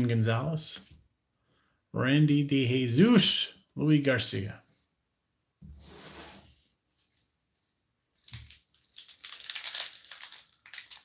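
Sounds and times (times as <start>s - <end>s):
soft rustle: 5.6s - 9.0s
foil wrapper crinkling and tearing: 8.3s - 11.0s.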